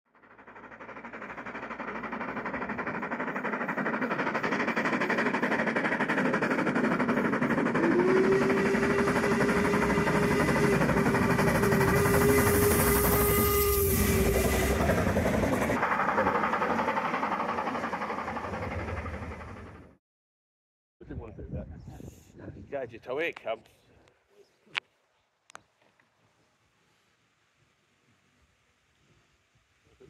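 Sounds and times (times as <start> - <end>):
steam locomotive running: 0.1 - 20.0
long steam whistle blast: 7.8 - 15.2.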